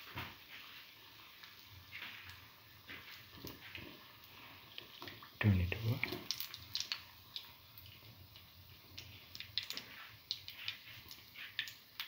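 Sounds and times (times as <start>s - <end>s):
cooking oil crackling: 0.0s - 12.0s
small oil pops: 6.1s - 7.5s, 8.9s - 12.0s.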